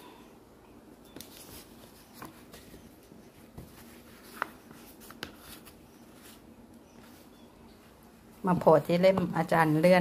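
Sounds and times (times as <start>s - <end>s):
book pages rustling: 1.1s - 7.3s.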